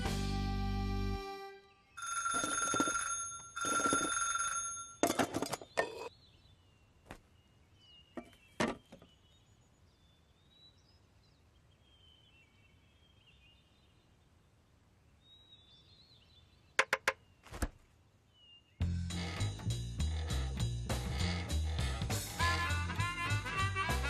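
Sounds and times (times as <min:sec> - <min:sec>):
bell ringing: 0:02.0 - 0:05.1.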